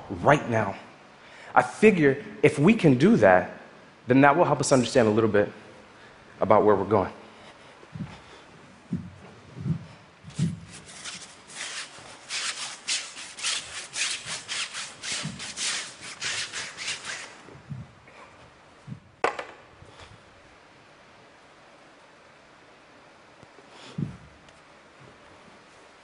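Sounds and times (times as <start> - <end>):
soft thuds: 8.9 - 10.8
paintbrush scrubbing on canvas: 10.3 - 17.4.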